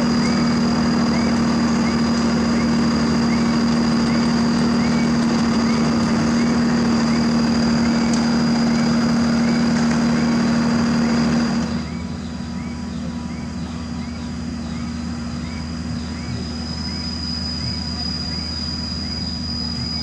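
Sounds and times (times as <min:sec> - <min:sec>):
diesel engines running: 0:00.0 - 0:20.0
high engine whine: 0:00.0 - 0:20.0
faint chirp: 0:11.8 - 0:20.0.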